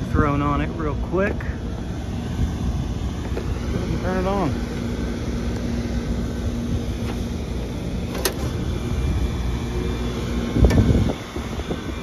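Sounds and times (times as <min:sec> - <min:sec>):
heat pump low rumble: 0:00.0 - 0:12.0
heat pump starting thump: 0:06.9 - 0:12.0.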